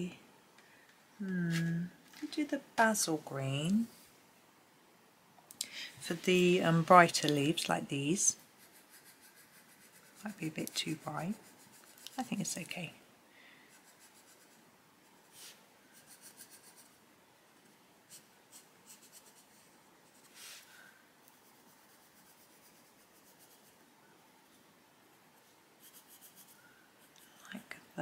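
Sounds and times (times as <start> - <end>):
coloured pencil scratching on paper: 8.2 - 12.9, 13.7 - 17.0, 18.1 - 20.4, 21.3 - 23.8, 25.8 - 27.4.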